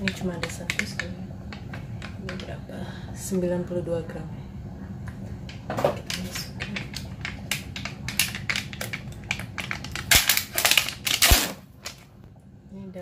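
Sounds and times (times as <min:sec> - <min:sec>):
steady low hum: 0:00.0 - 0:13.0
foil and plastic wrapping crackling: 0:09.2 - 0:12.0.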